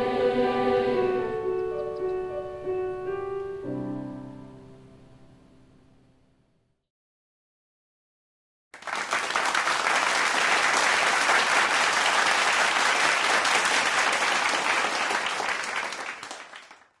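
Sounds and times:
crowd applauding: 0:08.8 - 0:17.0.

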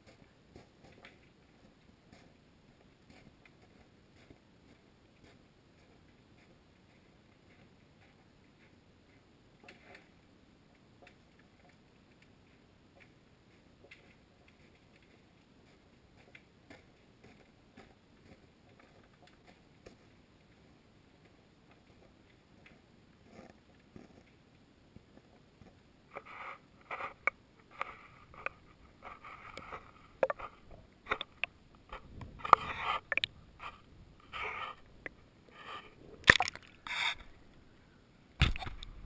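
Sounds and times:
faint underwater clicks: 0:26.1 - 0:37.6, 0:38.4 - 0:39.0
camera housing knocks and scrapes: 0:38.4 - 0:39.0.

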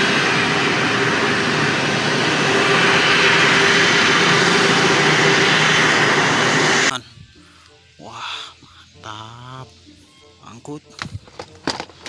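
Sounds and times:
jet engines whooshing: 0:00.0 - 0:07.3.

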